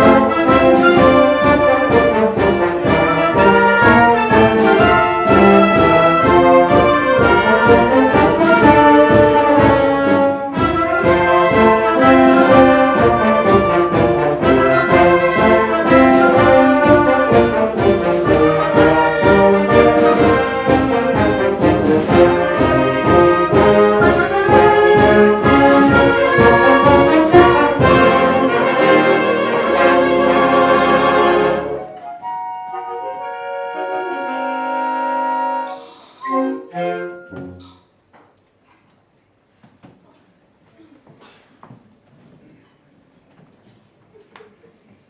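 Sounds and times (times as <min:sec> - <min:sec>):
percussion beat: 0:00.0 - 0:28.9
concert band playing: 0:00.0 - 0:37.8.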